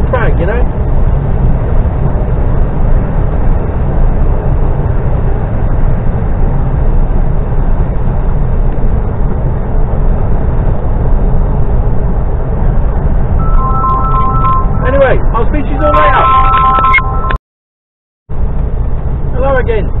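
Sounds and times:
lorry engine and road rumble: 0.0 - 17.4, 18.3 - 20.0.

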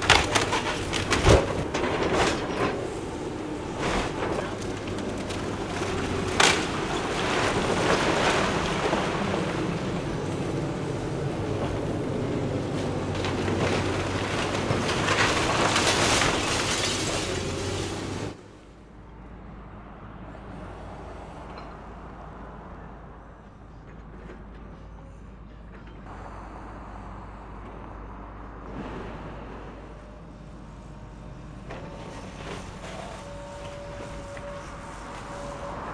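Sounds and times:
debris cracking and crashing: 0.0 - 10.0, 12.8 - 18.4
street background noise: 0.0 - 35.9
excavator diesel engine running: 22.7 - 35.9.

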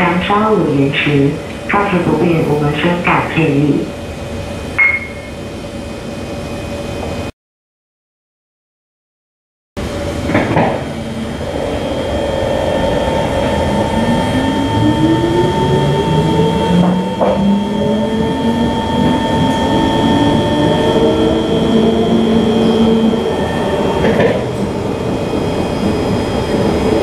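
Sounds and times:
train running noise: 0.0 - 7.3, 9.8 - 27.0
train traction motors whining: 9.8 - 27.0.

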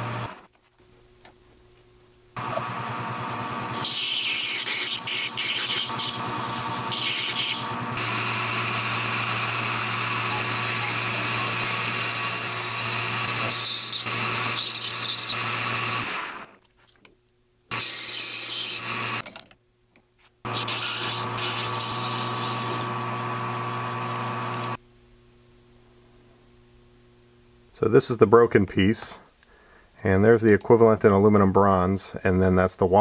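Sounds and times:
tool cutting metal: 3.7 - 16.4, 17.7 - 19.2, 20.5 - 23.1
lathe motor hum: 4.6 - 16.5, 20.5 - 24.8.

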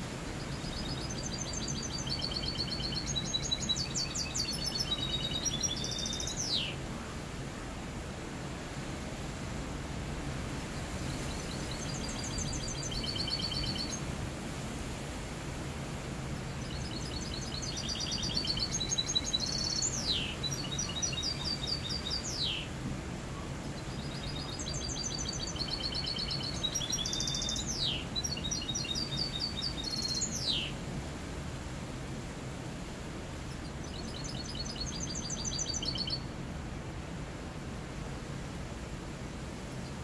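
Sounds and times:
low background noise: 0.0 - 40.0
finch singing trills: 0.6 - 6.8, 11.3 - 14.0, 16.6 - 22.7, 23.9 - 30.7, 33.8 - 36.2.

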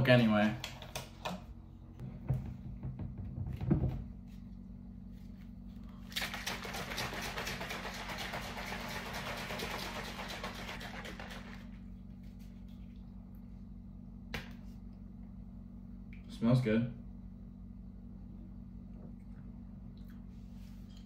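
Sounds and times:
knocks: 2.1 - 4.1
shaker bottle rattling and sloshing: 6.1 - 11.8.

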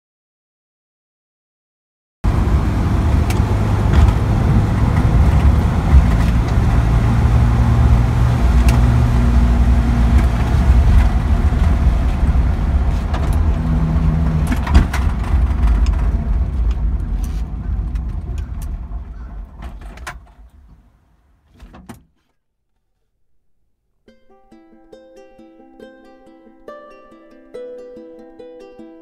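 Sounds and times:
truck engine running: 2.3 - 20.9
sharp clicks and rattles: 10.0 - 20.8.

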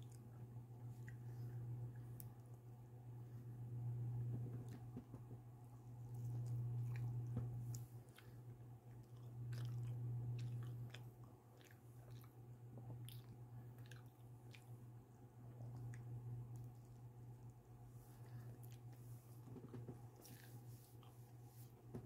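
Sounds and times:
steady low hum: 0.0 - 22.0
person chewing pizza: 6.0 - 21.4.

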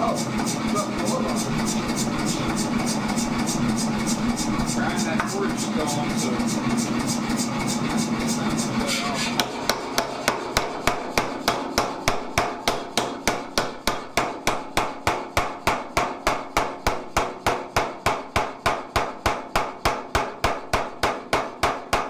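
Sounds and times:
power hammer striking steel: 9.0 - 22.0.

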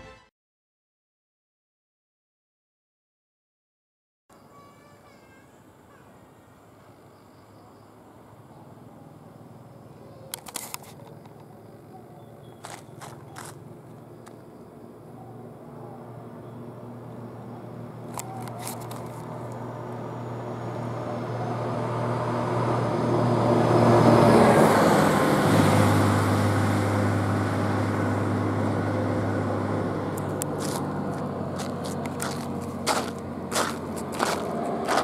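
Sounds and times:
sharp clicks: 10.3 - 11.5
truck engine passing by: 14.9 - 35.0.

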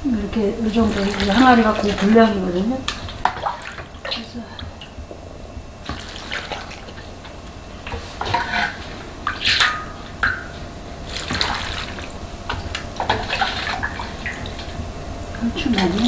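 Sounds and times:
brine pouring and splashing: 5.8 - 7.0, 8.4 - 14.8.

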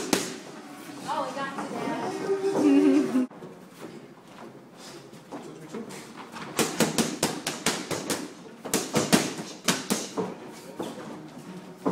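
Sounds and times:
boxing gloves slapping mitts: 0.0 - 0.5, 6.4 - 10.4.

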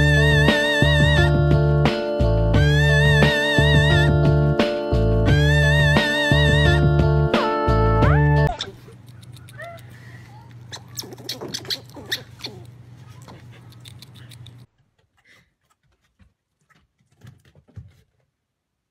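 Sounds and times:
steady low hum: 8.0 - 14.7
squirrel nibbling and crunching: 8.6 - 14.7.

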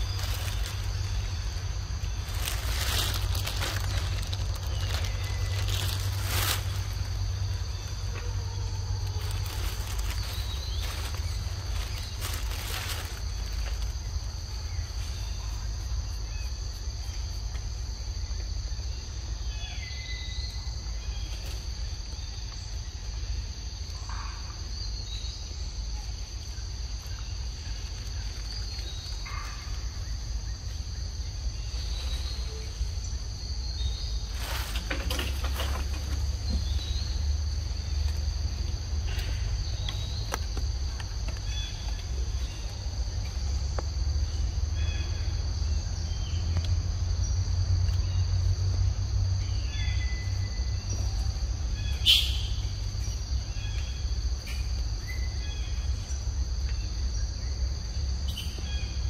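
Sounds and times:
rustling: 0.0 - 15.4, 31.7 - 38.3
high-pitched insect chorus: 0.0 - 59.0.

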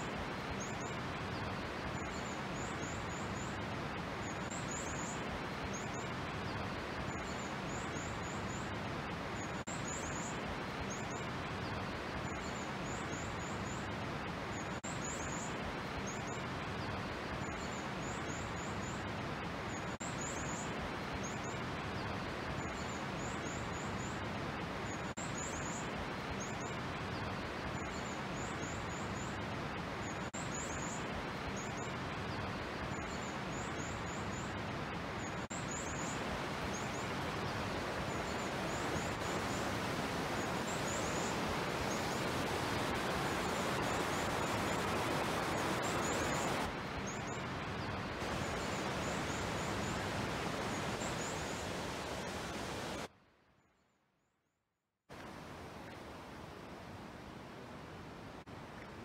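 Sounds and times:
small songbird chirping: 35.2 - 53.0
steady rushing background: 36.3 - 46.8.

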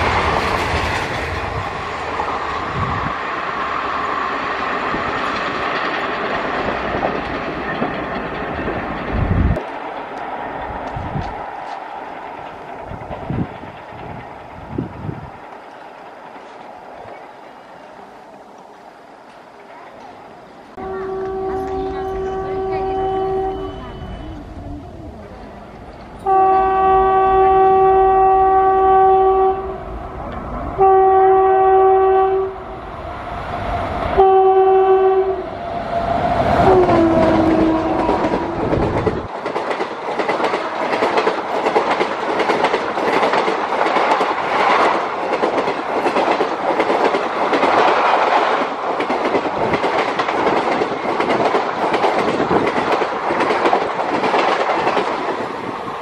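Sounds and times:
train wheels clickety-clack: 0.0 - 3.0, 4.5 - 20.2, 36.1 - 56.0
locomotive horn blasts: 20.8 - 24.5, 26.2 - 29.8, 30.8 - 32.6, 34.2 - 35.5, 36.6 - 38.5.

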